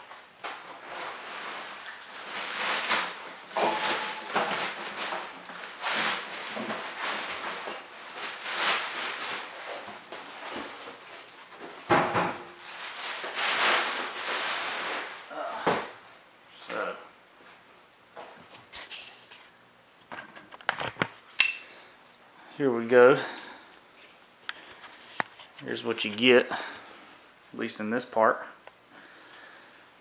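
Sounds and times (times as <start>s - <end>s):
plastic and foam rustling: 0.0s - 17.6s, 18.2s - 19.6s, 23.1s - 27.2s
heavy object thumping on floor: 11.9s - 12.5s.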